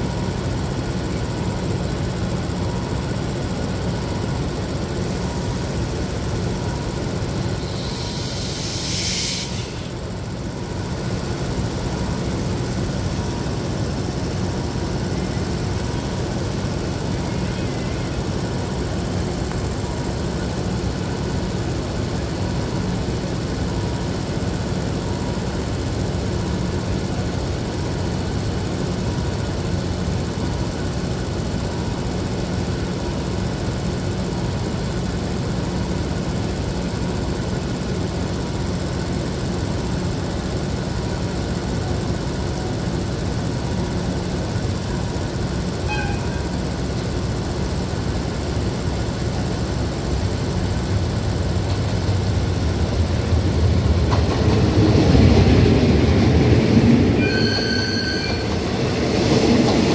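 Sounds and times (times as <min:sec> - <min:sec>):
diesel engine idling: 0:00.0 - 0:57.2.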